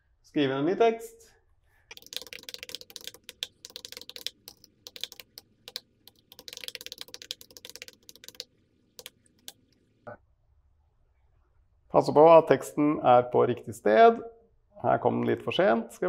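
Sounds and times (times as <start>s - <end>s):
fast typing on keyboard: 1.9s - 9.7s.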